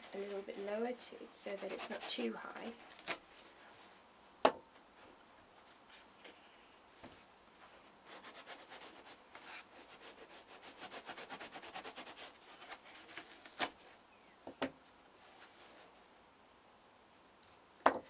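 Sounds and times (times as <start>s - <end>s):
knife sawing through foam: 0.0s - 3.2s, 8.0s - 13.7s.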